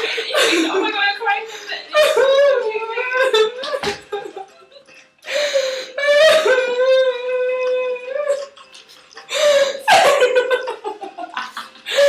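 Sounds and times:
person sobbing and laughing: 0:05.9 - 0:08.6.

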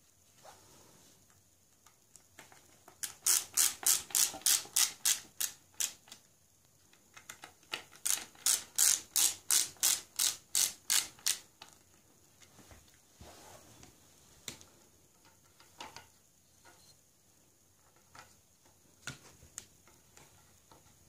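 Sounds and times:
screwdriver rasping screw into wood: 0:03.0 - 0:06.0, 0:08.1 - 0:11.4.

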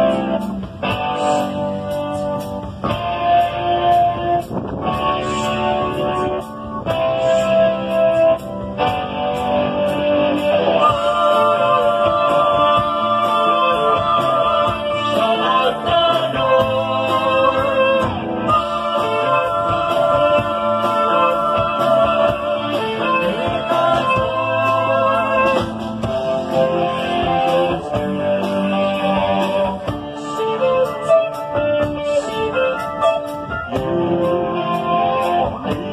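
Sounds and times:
live rock band: 0:00.0 - 0:35.9
person singing: 0:10.4 - 0:35.9.

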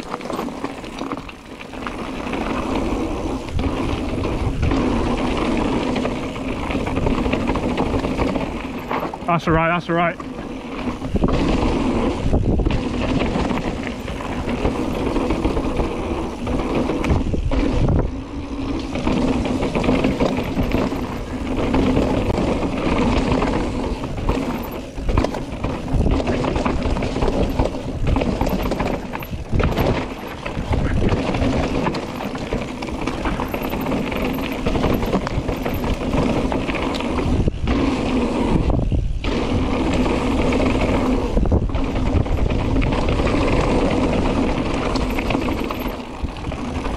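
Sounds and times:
bike tyres rattling over rocks: 0:00.0 - 0:46.9.

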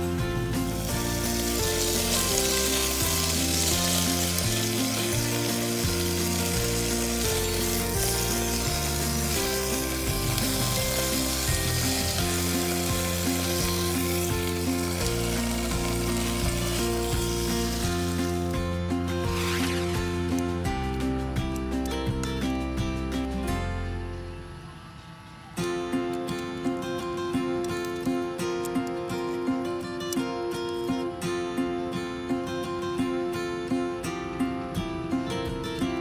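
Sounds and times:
food sizzling in a frying pan: 0:00.5 - 0:20.4.

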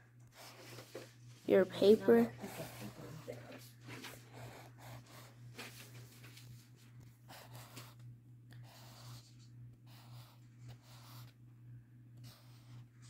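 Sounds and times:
steady low hum: 0:00.0 - 0:13.0
marker scratching on paper: 0:02.4 - 0:03.3, 0:04.0 - 0:05.4, 0:07.3 - 0:08.0, 0:08.6 - 0:11.4, 0:12.2 - 0:12.9.

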